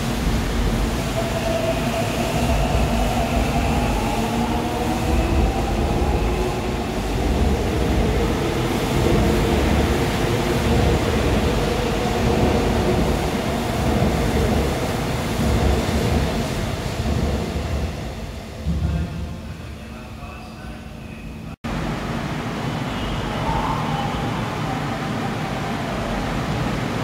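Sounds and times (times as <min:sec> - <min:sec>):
electric train passing: 0:00.0 - 0:27.0
whining tones shifting in pitch: 0:00.5 - 0:13.5.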